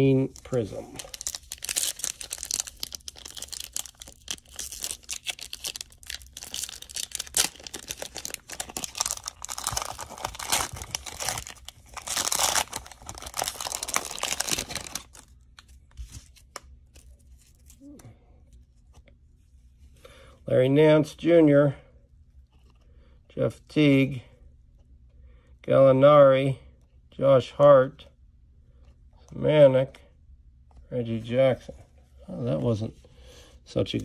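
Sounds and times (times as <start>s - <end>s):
cellophane wrapper tearing and crinkling: 0.3s - 16.6s.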